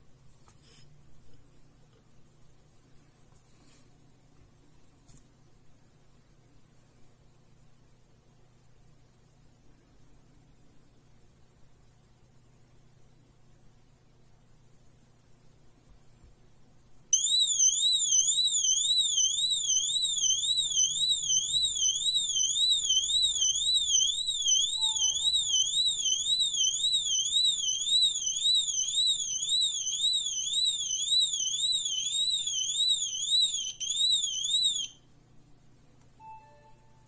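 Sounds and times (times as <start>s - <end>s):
high warbling alarm siren: 17.2s - 34.9s.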